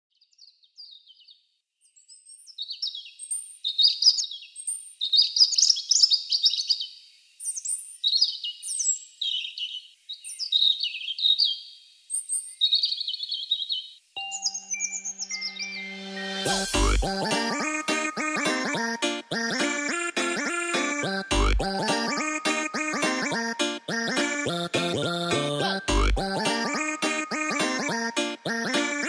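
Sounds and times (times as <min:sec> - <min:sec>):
robin singing: 0:00.2 - 0:29.0
music: 0:14.2 - 0:29.0.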